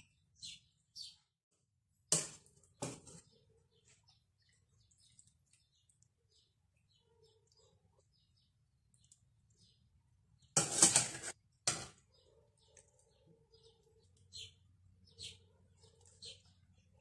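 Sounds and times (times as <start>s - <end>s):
metal spoon scraping steel pot: 10.6s - 11.9s.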